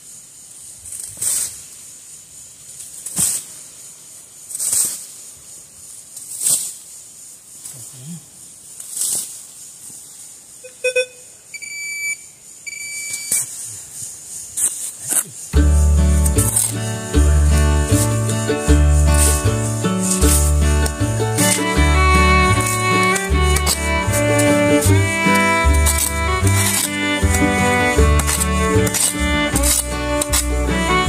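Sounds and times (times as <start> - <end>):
metal detector beeping: 10.6 - 13.5
spade chopping into dry dirt: 22.6 - 30.6.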